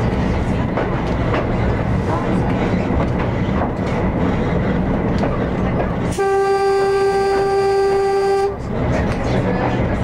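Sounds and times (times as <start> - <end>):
railmotor running along track: 0.0 - 10.0
train horn long note: 6.1 - 8.6.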